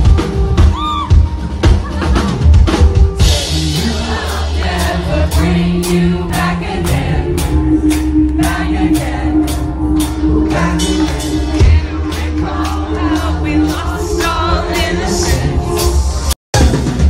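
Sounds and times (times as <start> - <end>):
drum beat: 0.0 - 17.0
live rock band playing: 0.0 - 17.0
man singing: 3.2 - 7.8, 10.3 - 16.0.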